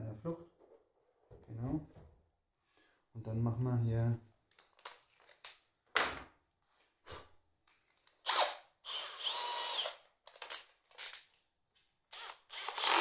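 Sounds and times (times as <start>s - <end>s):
clicks and knocks of parts handled: 4.5s - 5.7s, 10.2s - 11.4s
cordless drill running: 8.2s - 10.0s, 12.1s - 13.0s.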